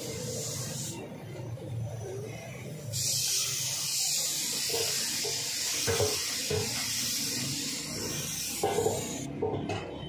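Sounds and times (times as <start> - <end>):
paint spray hissing: 0.0 - 1.2, 2.7 - 9.3.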